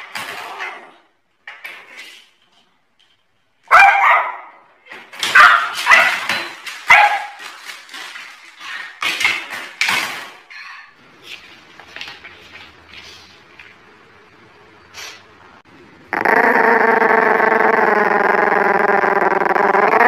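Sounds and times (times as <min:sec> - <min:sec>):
dog barking: 0:03.7 - 0:06.3, 0:06.9 - 0:07.4.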